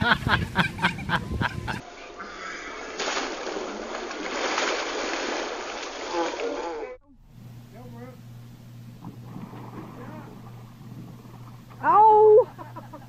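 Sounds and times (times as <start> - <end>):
person laughing: 0.0 - 1.8, 12.2 - 13.0
water splashing: 2.7 - 7.0, 9.0 - 12.6.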